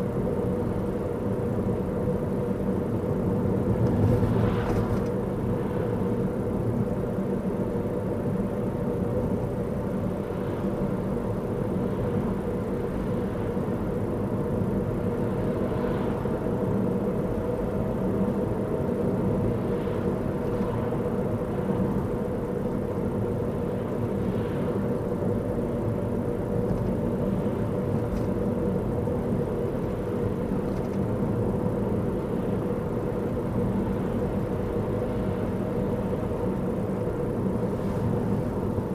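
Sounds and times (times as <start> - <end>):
car engine and road noise: 0.0 - 38.9
steady hum: 0.0 - 38.9.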